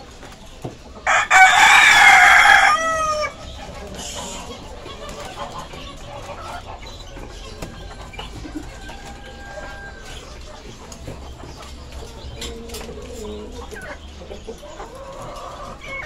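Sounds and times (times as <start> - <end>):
rooster crowing: 1.1 - 3.4.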